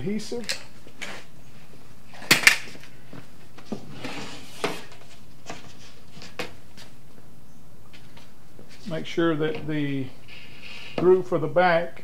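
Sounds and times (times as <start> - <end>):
wood scraping: 3.6 - 6.4.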